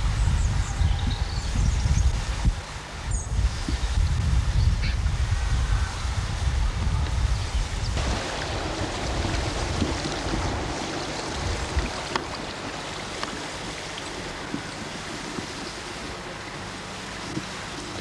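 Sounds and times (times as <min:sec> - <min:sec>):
wind buffeting microphone: 0:00.0 - 0:18.0
river rushing over rapids: 0:08.0 - 0:18.0.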